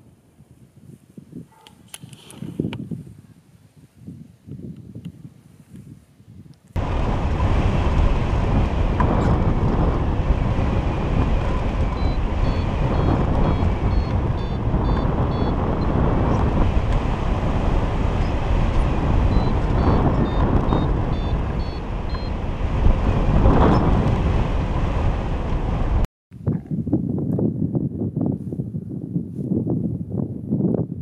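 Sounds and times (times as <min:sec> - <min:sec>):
wind rushing over microphone: 0:00.0 - 0:31.0
variometer high beeping pips: 0:12.0 - 0:16.0.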